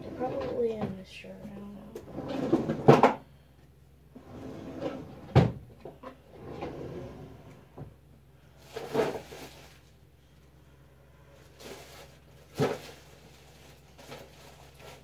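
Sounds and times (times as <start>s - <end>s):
cabinet doors and drawers shutting: 4.3s - 7.9s
rustling: 8.5s - 10.0s, 11.3s - 15.0s
items clattering: 8.6s - 10.0s, 11.4s - 15.0s.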